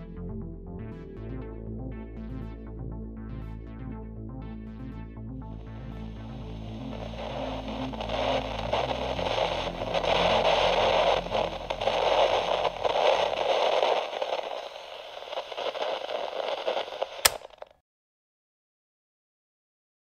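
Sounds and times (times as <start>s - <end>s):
loud crackling static: 5.6s - 17.6s
sharp click: 17.2s - 17.7s.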